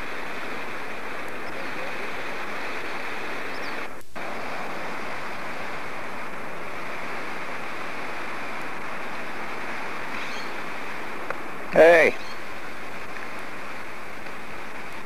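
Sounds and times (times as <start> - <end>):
river rushing over stones: 0.0 - 15.0.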